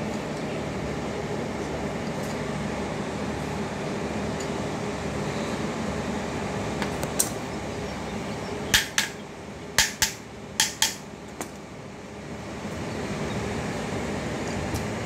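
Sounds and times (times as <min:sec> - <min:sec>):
steady background hum: 0:00.0 - 0:15.0
hammer tapping on metal: 0:08.7 - 0:09.2, 0:09.8 - 0:11.0.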